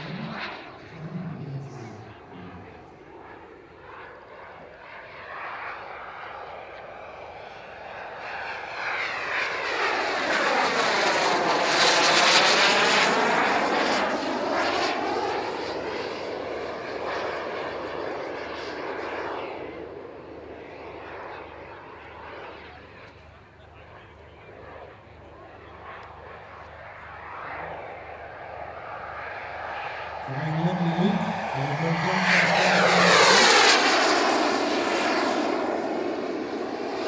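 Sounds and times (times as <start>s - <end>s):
high turbine whine: 0.0s - 3.8s, 30.0s - 35.8s.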